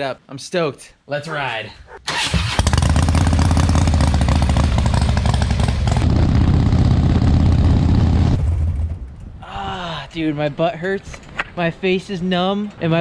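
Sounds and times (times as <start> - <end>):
motorcycle engine running: 2.4 - 8.9.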